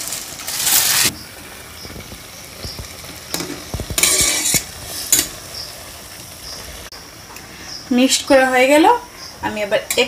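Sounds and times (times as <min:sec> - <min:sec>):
boiling water: 0:00.0 - 0:10.0
metal spoon scraping a pan: 0:03.3 - 0:05.7.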